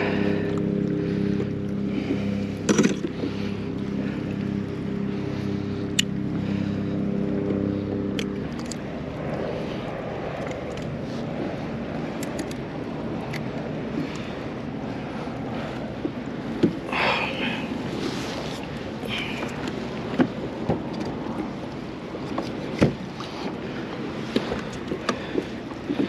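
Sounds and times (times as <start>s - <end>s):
low steady hum: 0.0s - 26.0s
water: 0.0s - 26.0s
wind: 0.0s - 26.0s
fishing gear clicks and rattles: 2.6s - 3.3s, 7.4s - 8.9s, 10.3s - 11.1s, 12.1s - 14.3s, 18.7s - 21.5s, 24.3s - 26.0s.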